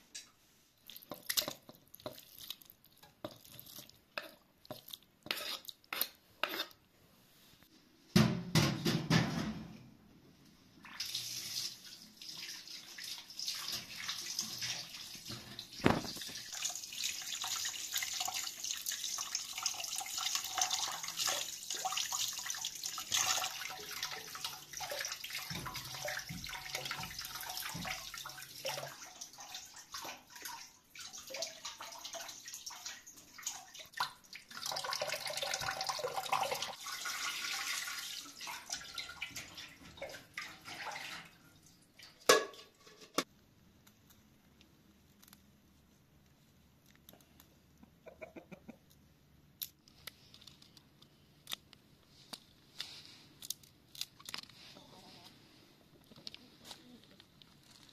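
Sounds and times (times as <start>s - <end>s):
tap water splashing into sink: 22.9s - 37.9s.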